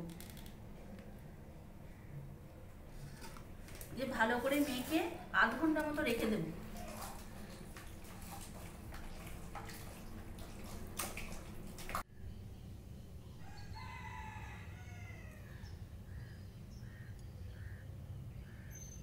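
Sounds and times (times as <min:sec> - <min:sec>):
hands squishing chicken in a pot: 0:06.6 - 0:12.0
rooster crowing: 0:13.4 - 0:15.6.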